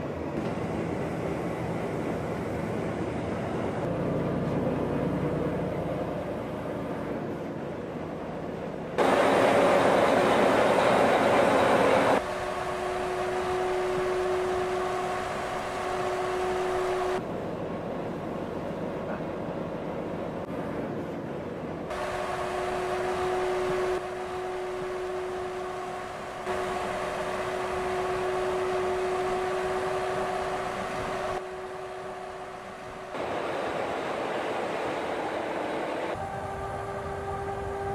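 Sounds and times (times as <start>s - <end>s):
heavy truck driving: 0.0s - 37.9s.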